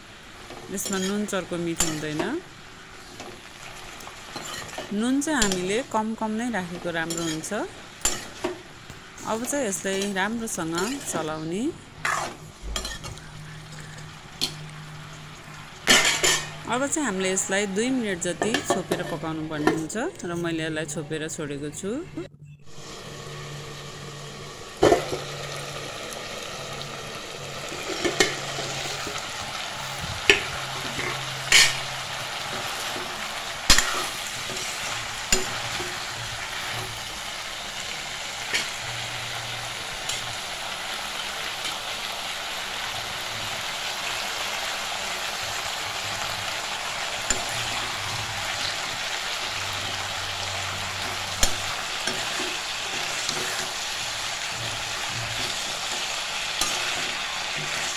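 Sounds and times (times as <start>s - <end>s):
vegetables sizzling in pan: 0.0s - 20.3s, 22.7s - 57.9s
metal ladle clinking pan: 15.9s - 16.6s, 30.3s - 31.8s.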